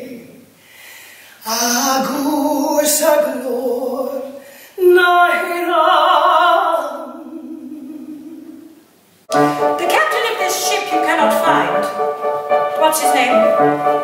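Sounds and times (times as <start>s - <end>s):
woman singing musical-theatre style: 1.4s - 12.0s, 12.8s - 13.7s.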